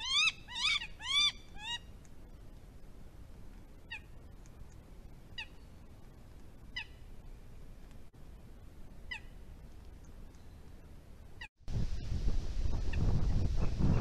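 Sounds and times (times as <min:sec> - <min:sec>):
hawk calls: 0:00.0 - 0:01.9.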